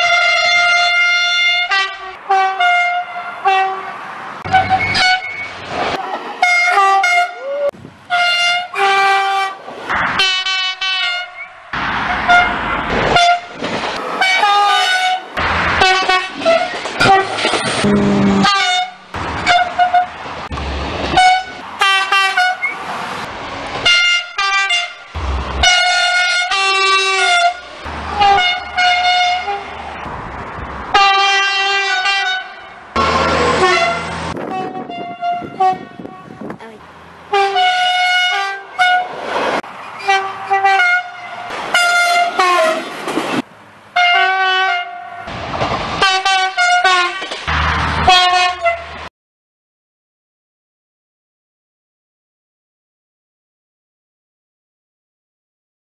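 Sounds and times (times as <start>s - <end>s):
train horns tooting: 0.0s - 9.6s, 10.2s - 11.5s, 12.1s - 20.2s, 21.1s - 22.8s, 23.8s - 29.8s, 30.9s - 39.2s, 40.0s - 42.9s, 44.0s - 45.3s, 46.0s - 47.3s, 48.0s - 49.1s
passing train rumble: 0.0s - 49.1s.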